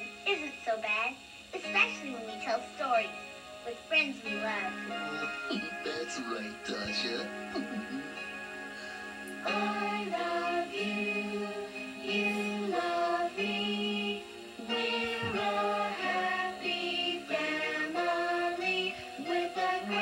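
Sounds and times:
backing music on television: 0.0s - 20.0s
voices singing together: 9.3s - 20.0s.

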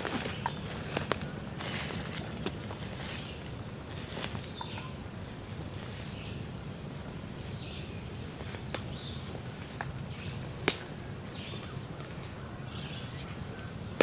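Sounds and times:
twigs snapping: 0.0s - 4.7s, 8.4s - 9.0s, 9.6s - 11.0s
footsteps through dry brush: 0.0s - 10.6s
small birds chirping: 0.0s - 14.0s.

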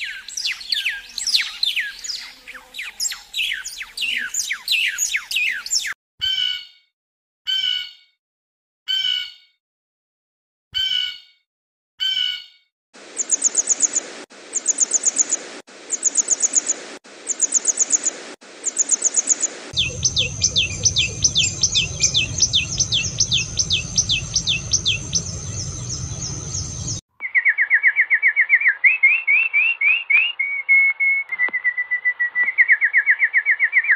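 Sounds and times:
bird sharp rising calls: 13.1s - 33.9s
finch trilling: 18.7s - 27.6s
low rumble: 19.7s - 27.0s
bird high trilled notes: 19.8s - 27.6s.

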